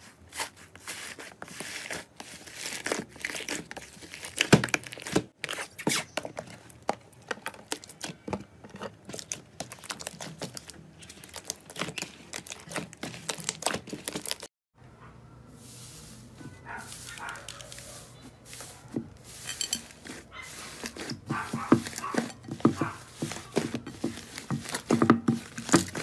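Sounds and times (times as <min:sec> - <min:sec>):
slime squelching and popping: 0:09.1 - 0:14.4.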